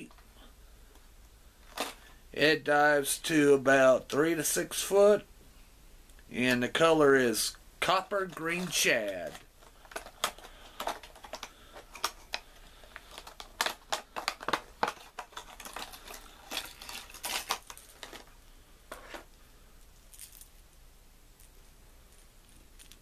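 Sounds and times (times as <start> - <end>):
plastic packaging clicking and crackling: 1.6 - 2.1, 7.9 - 19.3.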